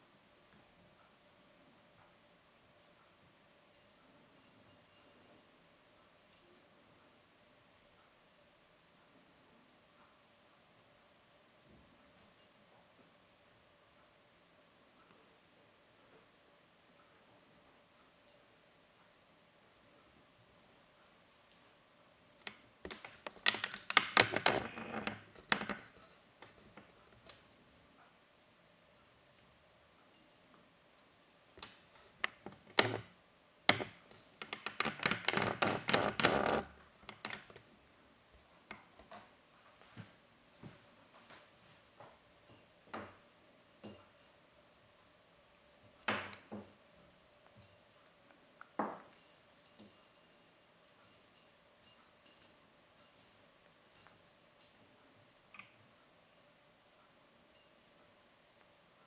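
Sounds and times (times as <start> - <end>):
kittens tapping and knocking: 22.5 - 27.4, 31.5 - 33.1, 33.7 - 37.7
cat toy jingling rattles: 46.0 - 55.5.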